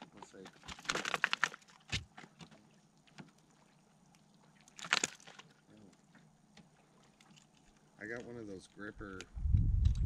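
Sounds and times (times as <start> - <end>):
fish handling rattling: 0.0 - 3.4, 4.7 - 5.5.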